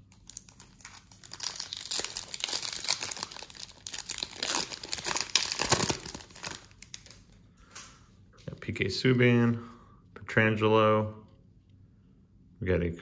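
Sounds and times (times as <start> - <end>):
foil wrapper crinkling and tearing: 0.0 - 7.3.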